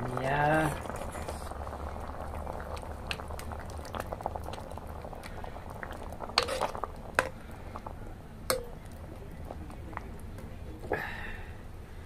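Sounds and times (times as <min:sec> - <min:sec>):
curry bubbling and popping: 0:00.0 - 0:11.4
ladle stirring: 0:05.2 - 0:07.4, 0:08.5 - 0:10.8
ladle knocking against pan: 0:08.5 - 0:08.8.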